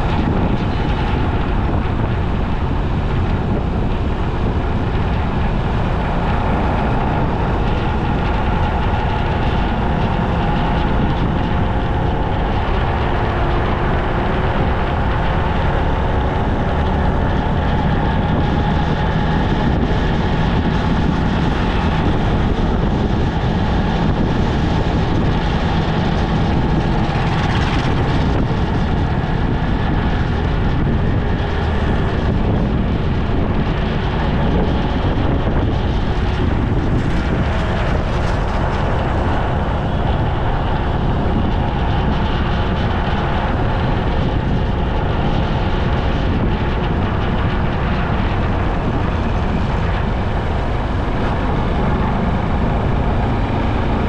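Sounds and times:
faint engine hum: 0.0s - 54.0s
tyres on asphalt: 0.0s - 54.0s
wind on microphone: 0.0s - 54.0s.

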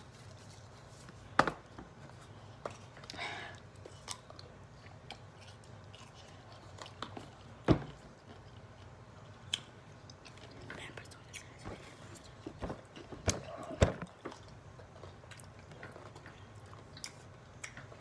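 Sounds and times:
chewing and crunching pickles: 2.4s - 11.6s, 14.1s - 18.0s.

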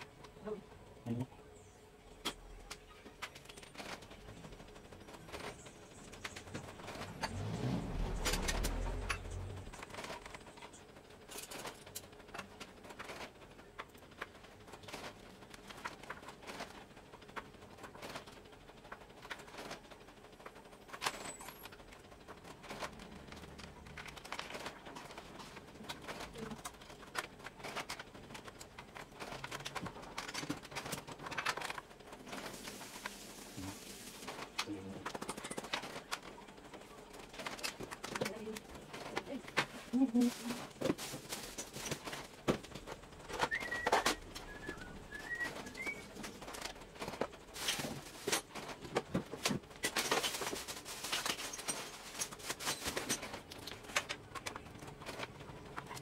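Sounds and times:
printer gears clicking and knocking: 2.1s - 32.6s, 34.2s - 40.0s.

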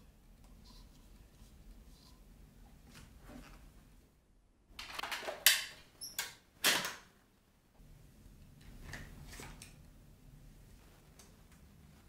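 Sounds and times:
faint room noise: 0.0s - 12.0s.

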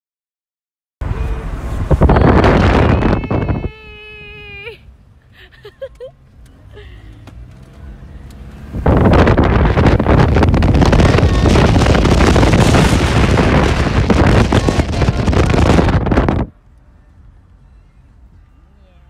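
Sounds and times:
wind buffeting microphone: 1.5s - 3.8s, 8.6s - 16.6s.

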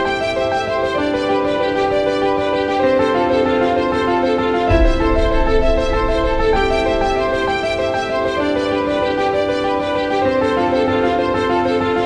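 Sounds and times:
music of sustained notes: 0.0s - 12.0s
low bass: 4.7s - 7.4s.

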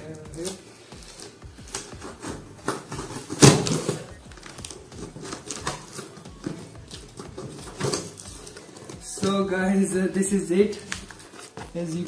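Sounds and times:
blade slitting packing tape: 0.4s - 9.4s.

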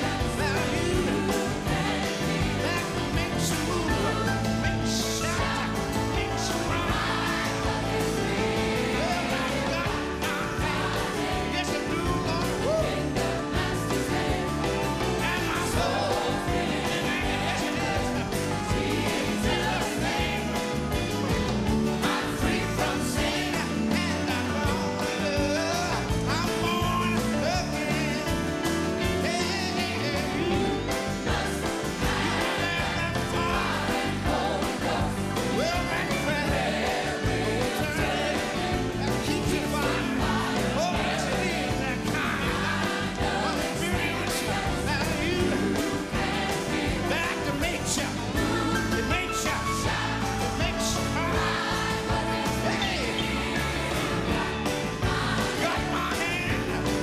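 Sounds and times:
choir singing: 0.0s - 28.4s, 29.1s - 57.0s
band playing: 0.0s - 57.0s
man singing into microphone: 23.6s - 28.3s.

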